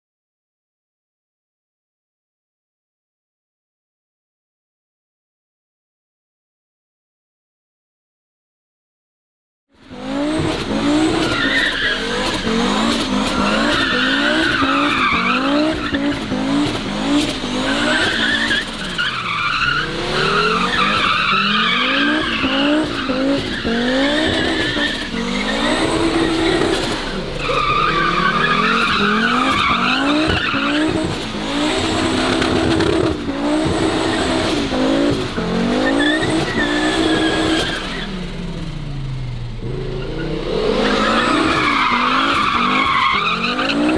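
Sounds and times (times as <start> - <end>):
car engine revving hard: 9.8 - 43.9
tyres squealing and skidding: 9.9 - 38.7, 39.6 - 43.9.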